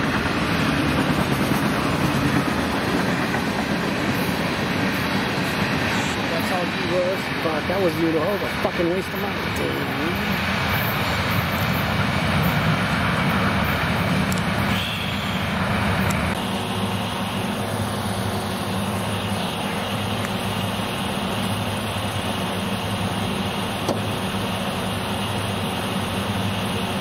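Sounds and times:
road noise: 0:00.0 - 0:27.0
vehicle engine humming: 0:00.0 - 0:27.0.

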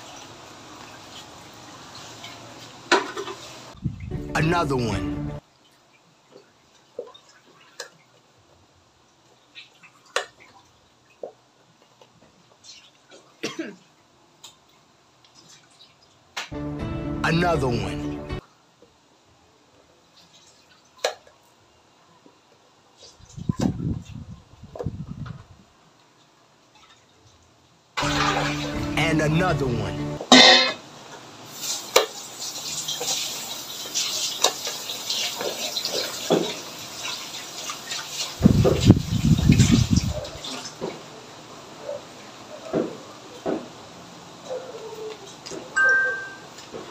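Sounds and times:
messy sound with falling pitch: 0:04.1 - 0:05.4.

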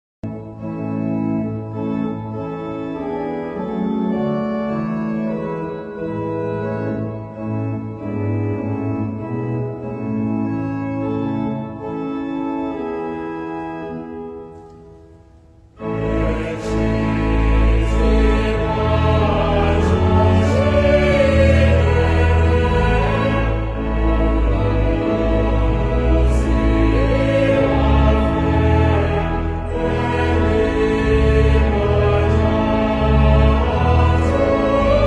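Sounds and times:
church organ chords: 0:00.2 - 0:35.0
choir singing: 0:15.8 - 0:35.0.

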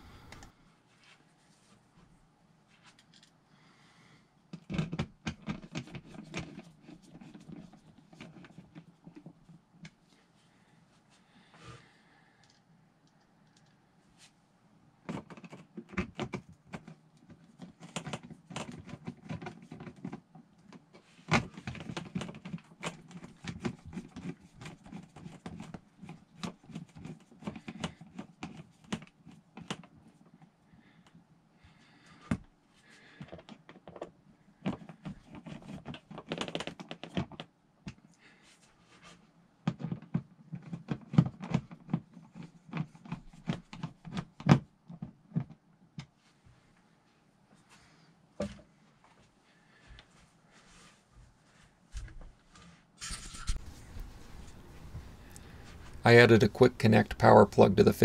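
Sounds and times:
screwdriver clicking and scraping: 0:53.0 - 0:54.1.

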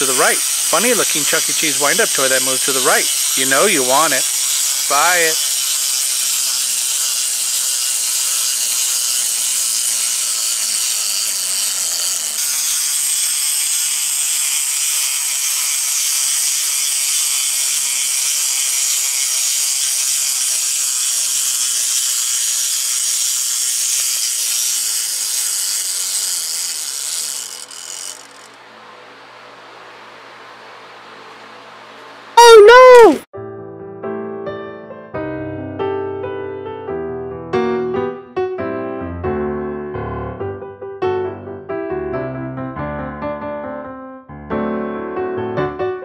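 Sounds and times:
wind-up toy gears whirring: 0:00.0 - 0:28.6, 0:32.4 - 0:33.2.

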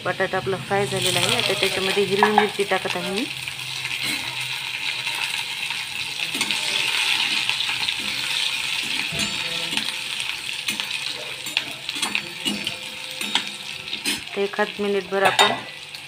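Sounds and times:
vegetables sizzling in hot oil: 0:00.0 - 0:16.0
spatula scraping and clinking pan: 0:00.9 - 0:02.8, 0:03.7 - 0:14.5.

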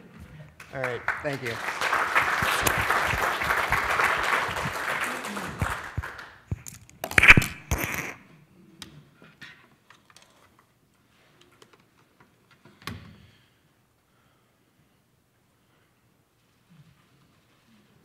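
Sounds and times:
audience applauding: 0:00.6 - 0:06.5.

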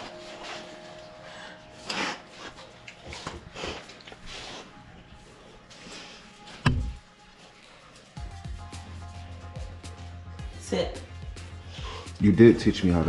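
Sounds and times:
dogs snorting and sniffing: 0:01.8 - 0:05.0.

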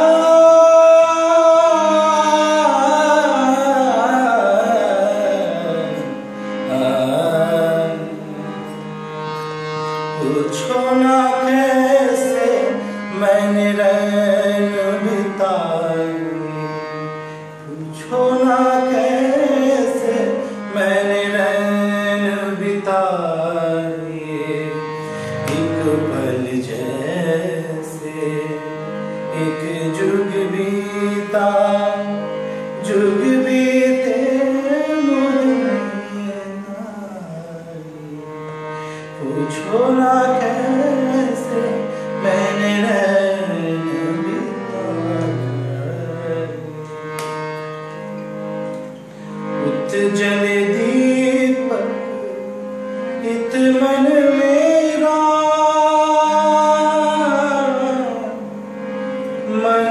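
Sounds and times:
man singing ornamented melody: 0:00.0 - 0:08.9, 0:10.2 - 0:16.9, 0:17.6 - 0:38.3, 0:39.2 - 0:46.9, 0:49.6 - 0:58.6, 0:59.3 - 0:59.9
harmonium chords: 0:00.0 - 0:59.9.

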